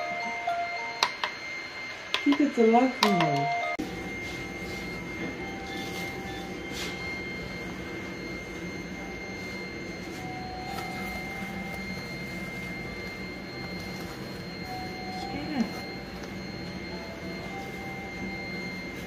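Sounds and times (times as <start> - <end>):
high-pitched whine: 0.0 - 19.0.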